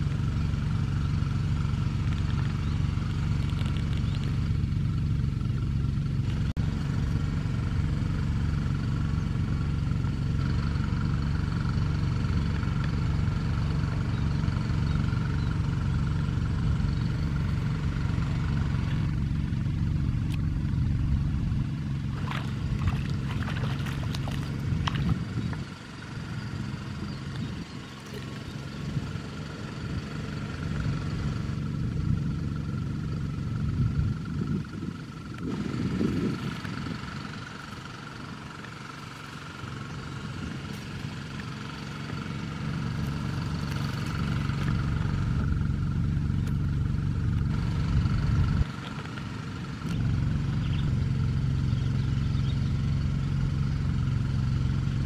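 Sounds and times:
low engine drone: 0:00.0 - 0:55.0.

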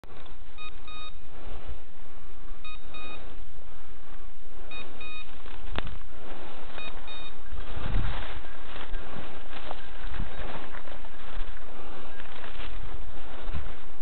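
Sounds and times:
beeper collar double beeps: 0:00.6 - 0:01.2, 0:02.6 - 0:03.3, 0:04.7 - 0:05.3, 0:06.8 - 0:07.6.

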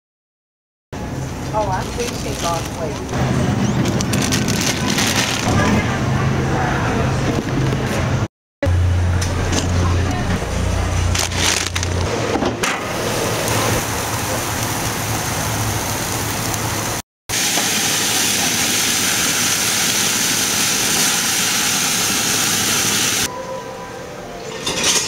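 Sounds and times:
noisy background: 0:01.0 - 0:16.0
sharp crinkles: 0:01.6 - 0:05.6, 0:11.0 - 0:12.1
patties sizzling on a grill: 0:13.0 - 0:23.3.

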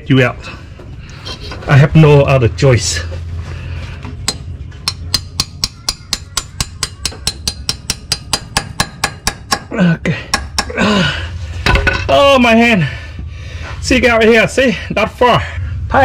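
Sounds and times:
hammer striking a metal pin: 0:04.2 - 0:09.7, 0:10.3 - 0:10.8.

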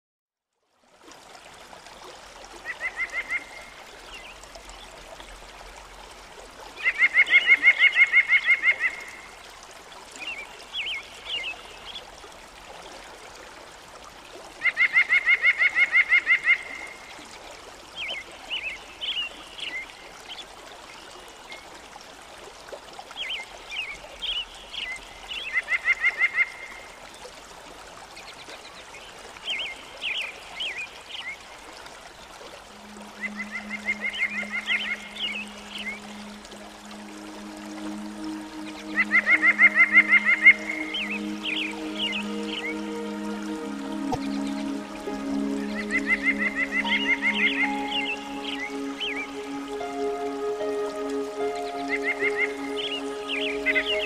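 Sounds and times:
running water: 0:00.5 - 0:54.0
bird pulsed trills: 0:32.8 - 0:54.0.

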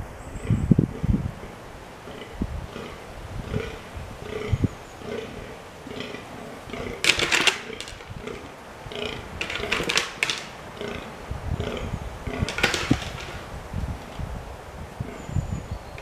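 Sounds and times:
deer antlers clashing: 0:06.0 - 0:14.3.

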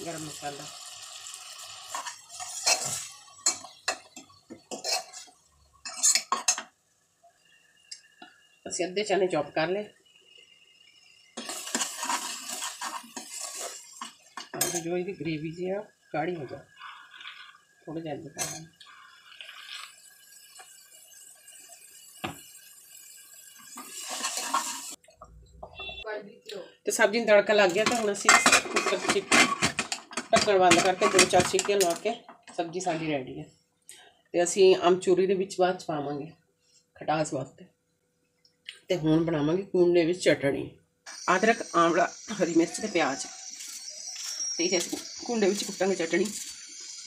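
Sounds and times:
frying hiss: 0:00.0 - 0:25.0, 0:41.1 - 0:47.0
ladle scraping metal pot: 0:01.3 - 0:06.7, 0:11.4 - 0:14.9, 0:23.7 - 0:25.0, 0:27.6 - 0:32.2
ladle clinking on metal pot: 0:27.7 - 0:32.0.

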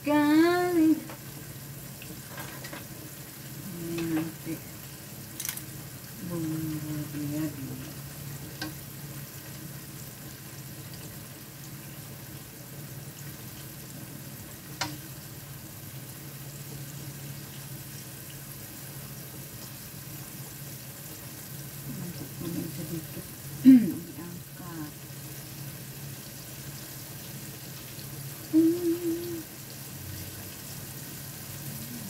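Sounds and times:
chicken sizzling in hot oil: 0:00.0 - 0:32.0
metal tongs clicking on wok: 0:05.4 - 0:05.7.

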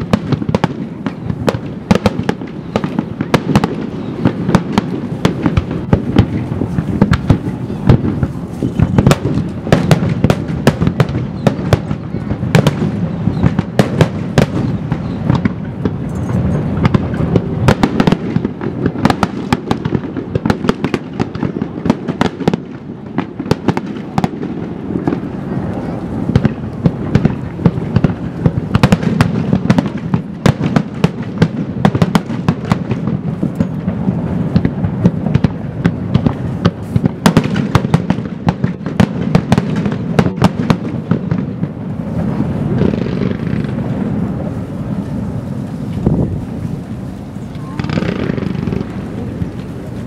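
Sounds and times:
fireworks bursting with sharp bangs: 0:00.0 - 0:50.0
steady low rumble: 0:21.5 - 0:30.4, 0:41.2 - 0:50.0.

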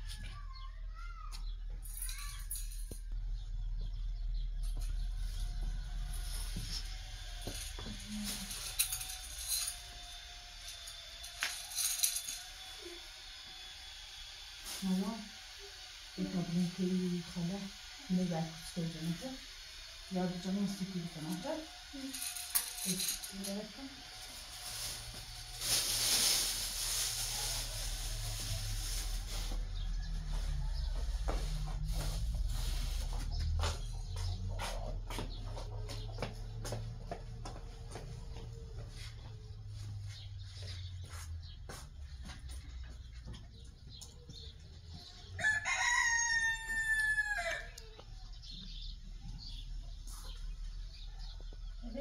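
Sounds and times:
hiss: 0:12.4 - 0:22.8
rooster crowing: 0:29.5 - 0:32.1, 0:45.3 - 0:48.0.

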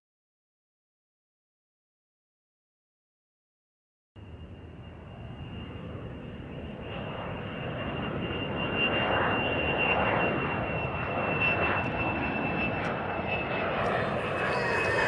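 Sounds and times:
thin high whine: 0:08.1 - 0:15.0
steady rushing engine-like noise: 0:13.6 - 0:15.0.

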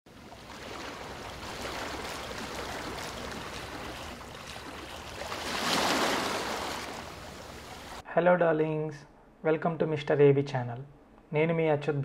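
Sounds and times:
sea surf on beach: 0:00.1 - 0:08.0.

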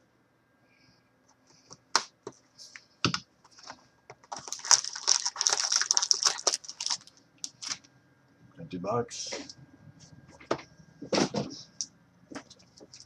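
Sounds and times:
plastic wrap and cardboard crackling: 0:03.5 - 0:07.9, 0:12.3 - 0:13.0.

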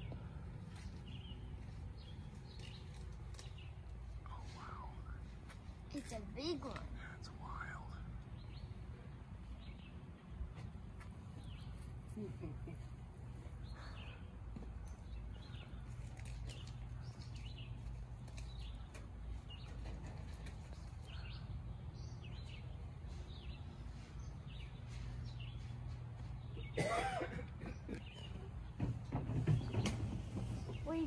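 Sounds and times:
steady low rumble: 0:00.0 - 0:19.6
songbirds chirping: 0:00.0 - 0:31.0.

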